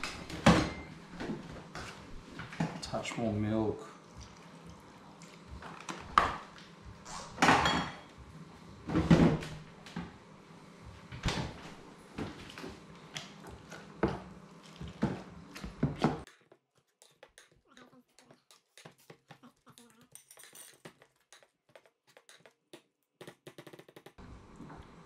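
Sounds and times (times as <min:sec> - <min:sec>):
utensil knocking and scraping pot: 0:16.2 - 0:22.8.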